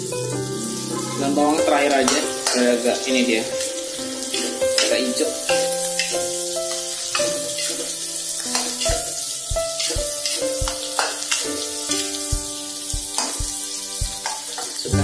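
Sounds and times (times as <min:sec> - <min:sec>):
onions sizzling in hot oil: 0:00.0 - 0:15.0
metal spatula scraping a wok: 0:03.6 - 0:06.2, 0:06.8 - 0:08.9, 0:09.8 - 0:11.6
background music with steady beat: 0:08.5 - 0:15.0.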